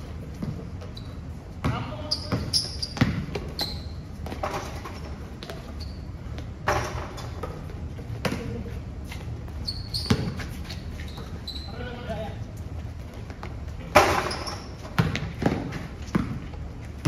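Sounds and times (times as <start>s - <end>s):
basketball bouncing on concrete: 0.2s - 1.0s, 1.6s - 5.8s, 6.4s - 8.6s, 10.0s - 10.5s, 13.2s - 17.0s.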